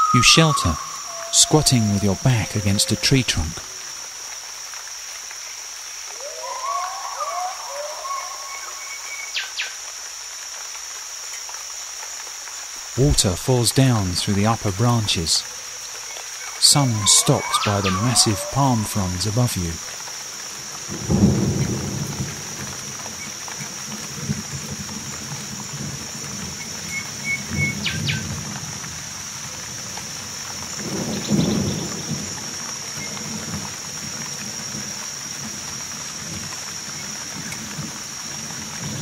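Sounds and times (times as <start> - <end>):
heavy rain pouring: 0.0 - 39.0.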